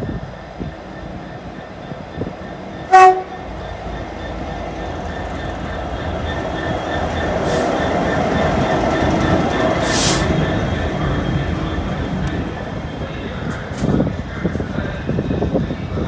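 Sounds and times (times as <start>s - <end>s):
freight train passing: 0.0s - 16.0s
train horn blast: 2.9s - 3.4s.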